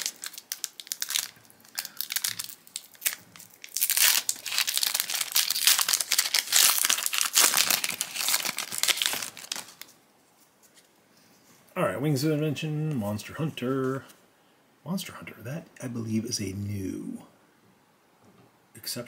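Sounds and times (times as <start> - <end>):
foil pack tearing and crinkling: 0.0 - 9.9.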